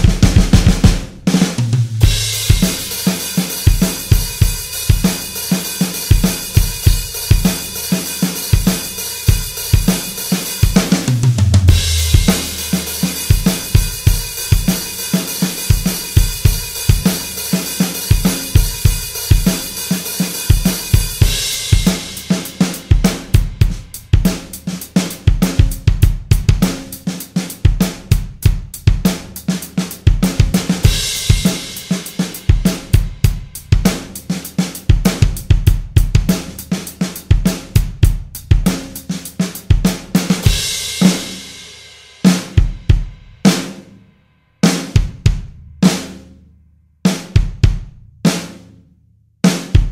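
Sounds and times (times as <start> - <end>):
double-kick bass drum: 1.8 - 2.9, 10.7 - 14.8, 44.9 - 45.7, 47.4 - 48.1
crashing cymbal wash: 11.7 - 22.9.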